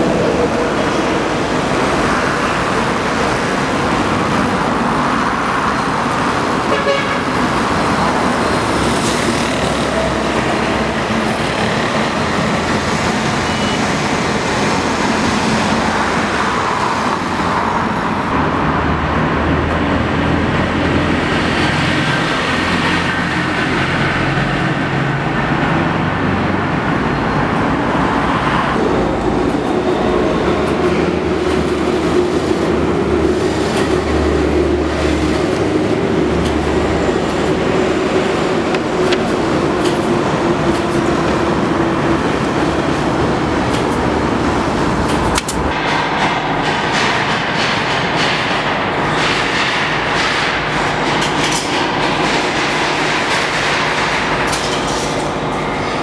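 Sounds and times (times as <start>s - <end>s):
road traffic passing: 0.0s - 56.0s.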